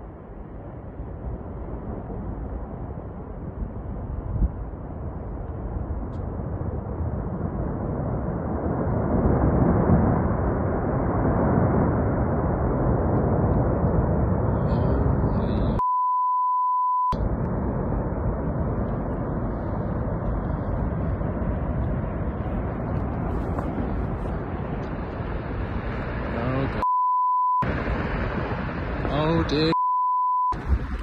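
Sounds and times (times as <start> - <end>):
avalanche rushing rumble: 0.0 - 15.8, 17.2 - 26.8, 27.6 - 29.8, 30.6 - 31.0
censor bleep: 15.8 - 17.2, 26.8 - 27.6, 29.7 - 30.6.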